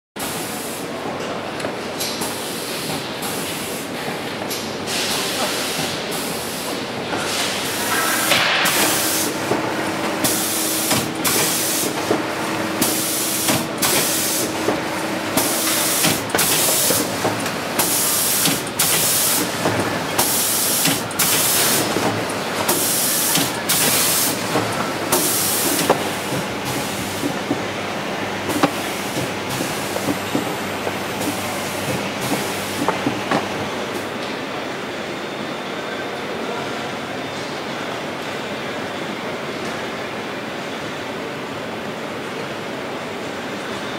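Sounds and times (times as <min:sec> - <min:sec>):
machine clatter and hum: 0:01.2 - 0:34.4.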